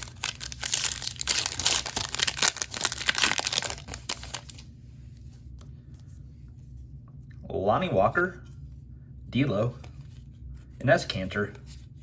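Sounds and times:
foil wrapper crinkling and tearing: 0.0 - 4.6.

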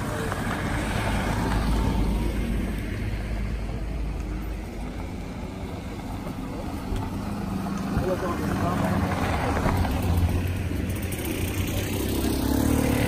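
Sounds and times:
off-road vehicle driving past: 6.7 - 13.0.

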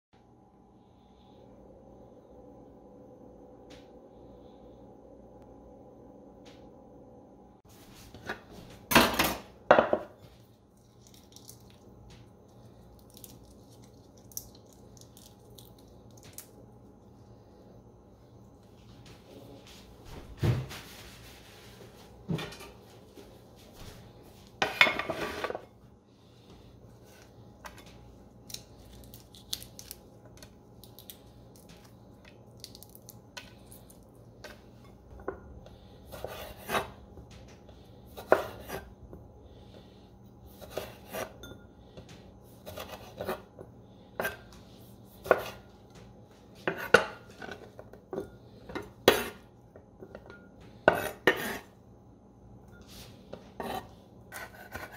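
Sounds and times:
scrape on cutting board: 24.6 - 25.7, 36.1 - 37.0, 42.6 - 43.5, 50.9 - 51.7, 52.8 - 54.9.

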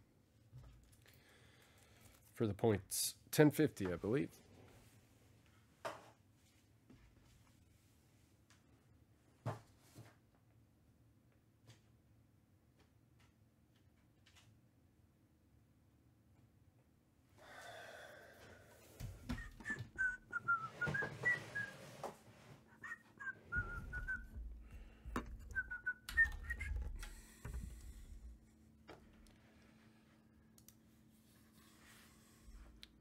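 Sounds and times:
person whistling a tune: 19.3 - 21.8, 22.8 - 24.4, 25.5 - 27.0
clicks and knocks: 23.6 - 27.8.

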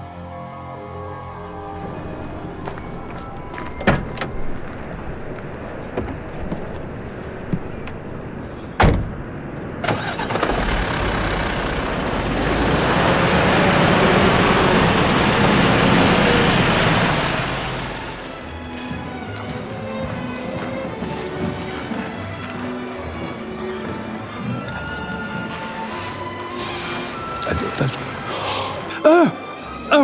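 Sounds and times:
truck engine starting and running: 1.0 - 20.4, 21.1 - 30.0
truck cab door slamming: 3.4 - 4.6, 8.8 - 9.2.

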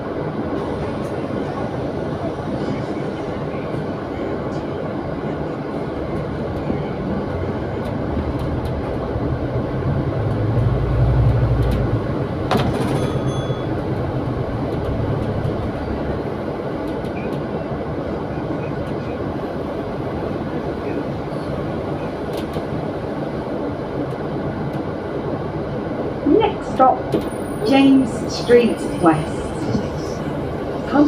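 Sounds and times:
bus engine and road rumble: 0.0 - 31.0
bus body rattles: 7.7 - 17.4.

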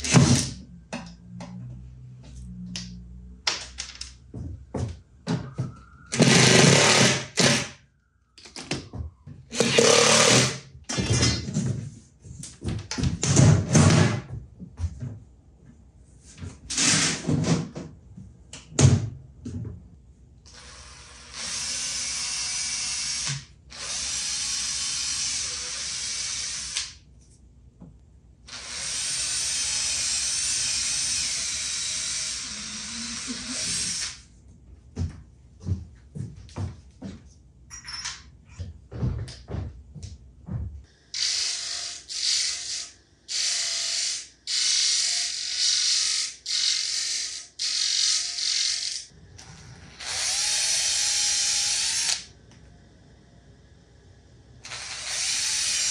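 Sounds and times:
cordless drill driving screws: 6.1 - 7.7, 9.5 - 10.6, 28.5 - 34.2, 41.2 - 52.3, 54.6 - 55.9.

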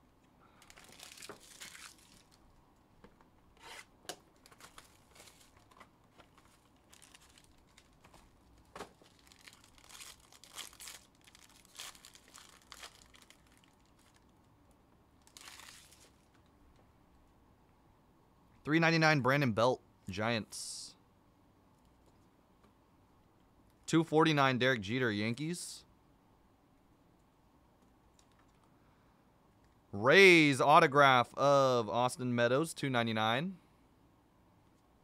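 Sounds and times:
foil wrapper tearing and crinkling: 0.6 - 2.4, 3.6 - 14.3, 15.2 - 16.3.

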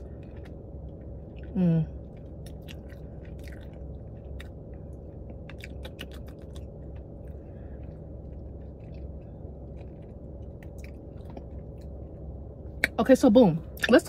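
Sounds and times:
low car cabin hum: 0.0 - 14.0
wet lip smacks and chewing: 2.1 - 12.0.

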